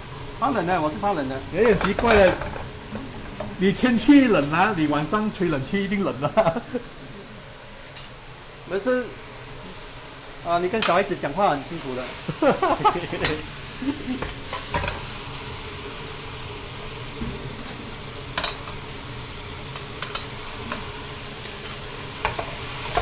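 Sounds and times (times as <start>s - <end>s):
meat sizzling in a wok: 0.0s - 23.0s.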